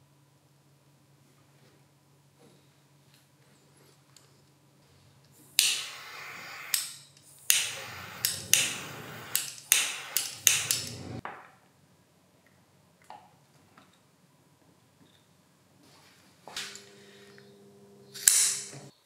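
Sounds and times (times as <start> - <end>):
jet lighter flame hissing: 5.4 - 11.2, 17.3 - 18.9
lighter igniter clicks: 5.5 - 11.2, 18.2 - 18.8.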